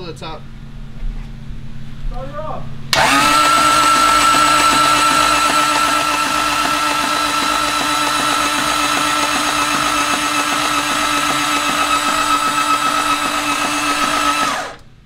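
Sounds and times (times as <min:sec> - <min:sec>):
engine cranking on starter: 0:02.9 - 0:14.9.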